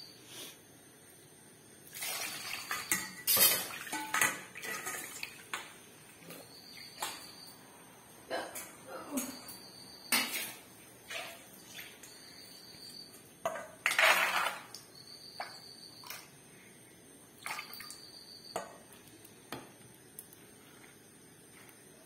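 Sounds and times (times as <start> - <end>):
steel pot and bowl clattering: 2.7 - 5.4.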